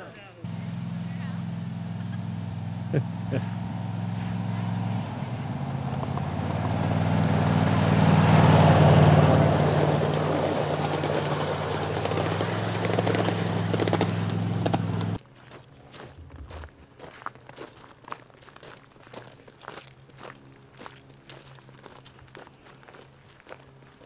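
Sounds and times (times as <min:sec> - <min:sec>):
locomotive engine humming: 0:00.0 - 0:17.0.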